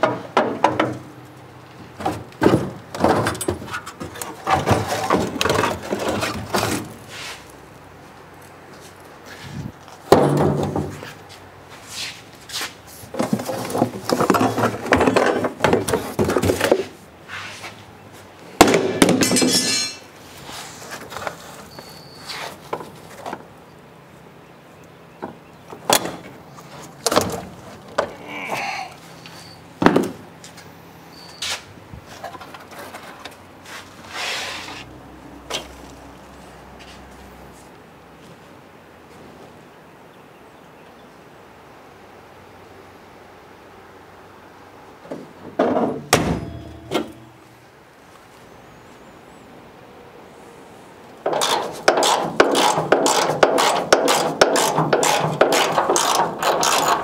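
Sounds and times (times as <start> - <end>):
metal scraping and clunking: 1.9 - 7.4, 18.9 - 21.4, 45.6 - 47.5, 51.2 - 57.0
sharp knocks and clicks: 51.2 - 57.0.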